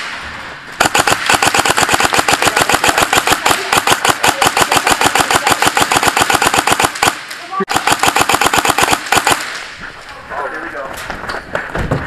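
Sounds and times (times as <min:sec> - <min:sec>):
airsoft gun rapid firing: 0:00.8 - 0:09.7.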